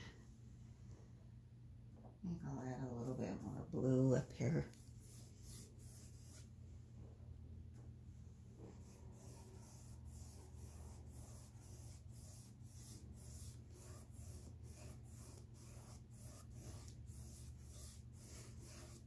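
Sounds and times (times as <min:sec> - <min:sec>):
low steady hum: 0:00.0 - 0:19.0
paintbrush swishing on canvas: 0:04.6 - 0:06.6.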